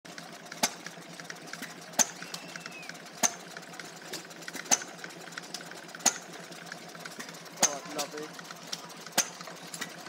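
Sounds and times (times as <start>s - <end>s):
stationary engine ticking: 0.1s - 10.0s
sharp mechanical click: 1.6s - 3.4s, 4.1s - 5.0s, 8.7s - 10.0s.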